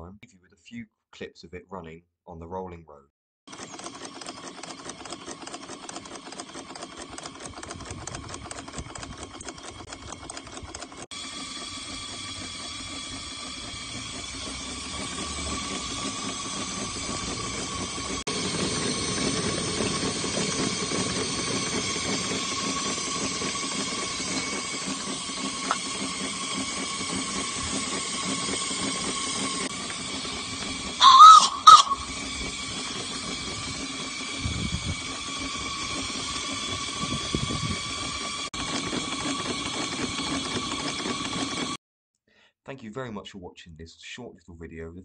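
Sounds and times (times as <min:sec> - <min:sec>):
steam locomotive hissing: 0:11.2 - 0:41.6
loud whistle blasts: 0:31.0 - 0:32.1.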